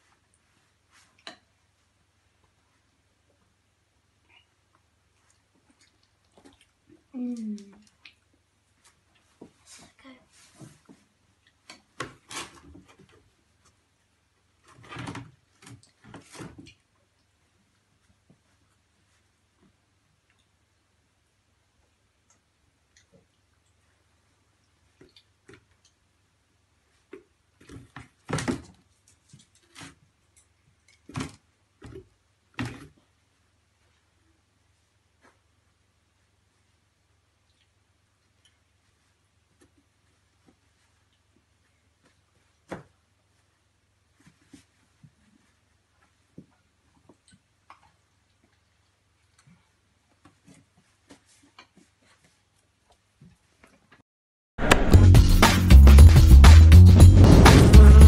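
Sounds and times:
animals wrestling on pet bed: 0:38.2 - 0:54.0.

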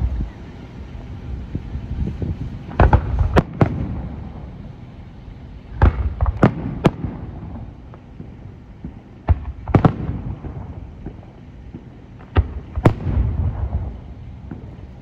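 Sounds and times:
low rumble of echo: 0:00.0 - 0:15.0
fireworks shells booming: 0:02.1 - 0:04.7, 0:05.7 - 0:15.0.

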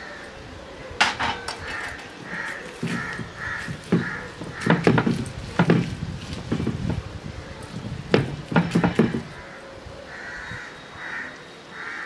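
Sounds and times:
bird calling: 0:00.0 - 0:05.6, 0:07.3 - 0:12.0
stone roller crushing garlic on slab: 0:01.0 - 0:07.1, 0:07.8 - 0:09.4.

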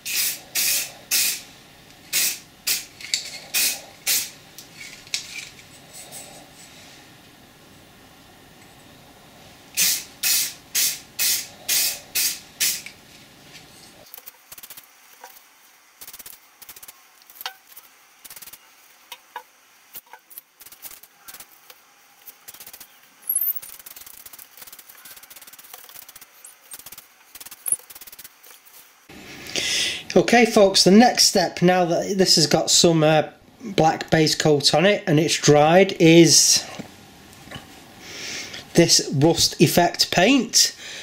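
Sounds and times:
spray paint can hissing: 0:00.0 - 0:01.5, 0:02.1 - 0:04.4, 0:09.8 - 0:13.0, 0:14.2 - 0:14.9, 0:16.0 - 0:17.0, 0:17.7 - 0:18.6, 0:20.6 - 0:21.7, 0:22.3 - 0:28.5.

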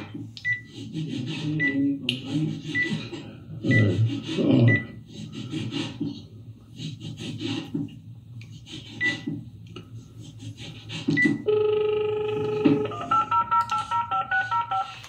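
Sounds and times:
keypad touch tones: 0:11.2 - 0:15.0
phone dial tone: 0:11.5 - 0:15.0.

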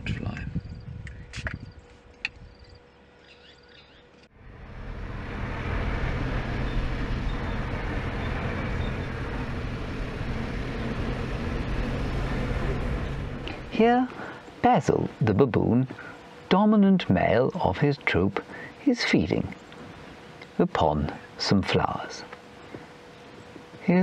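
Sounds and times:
vehicle engine hum: 0:00.0 - 0:24.0
faint bird chirps: 0:02.4 - 0:04.2
tyre and road noise: 0:04.2 - 0:15.1.

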